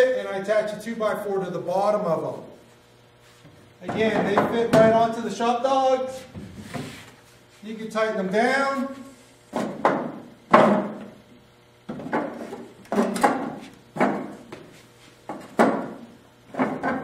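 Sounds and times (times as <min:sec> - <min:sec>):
boards knocking on sawhorses: 0:03.8 - 0:05.0, 0:09.5 - 0:11.1, 0:11.9 - 0:14.7, 0:15.3 - 0:17.0.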